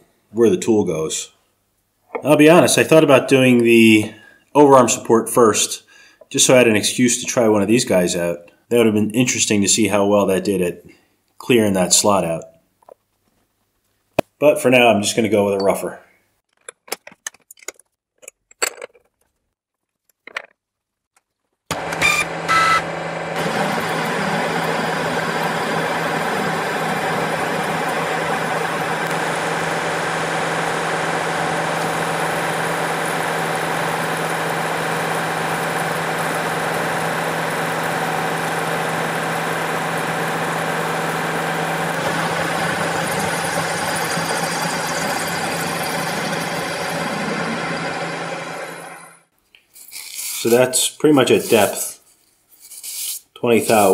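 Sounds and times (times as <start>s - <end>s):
milling machine cutting metal: 21.7s - 49.2s.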